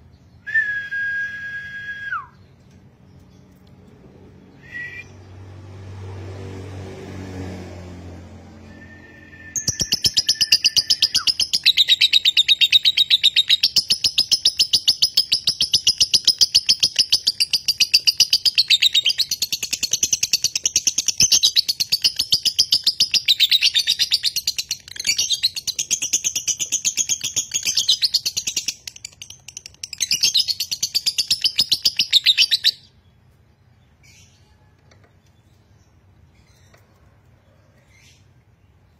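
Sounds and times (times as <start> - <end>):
lovebird chattering trill: 9.6 - 32.8.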